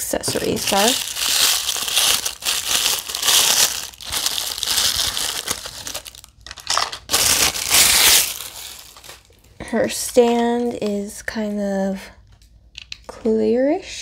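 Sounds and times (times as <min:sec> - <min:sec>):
plastic wrapper crinkling: 0:00.2 - 0:09.6.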